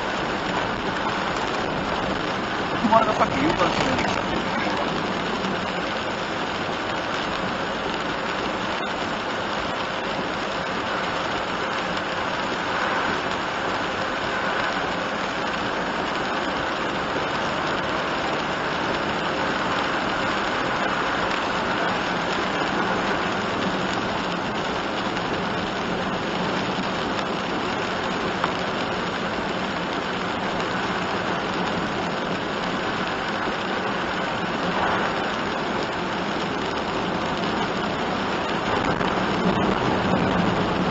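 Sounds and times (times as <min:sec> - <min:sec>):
heavy rain on vehicle roof: 0:00.0 - 0:40.9
tyre noise on wet road: 0:00.0 - 0:40.9.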